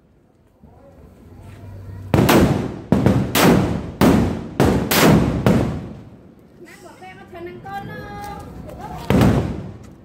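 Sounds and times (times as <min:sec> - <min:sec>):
firecrackers banging: 0:02.0 - 0:06.3, 0:08.8 - 0:10.0.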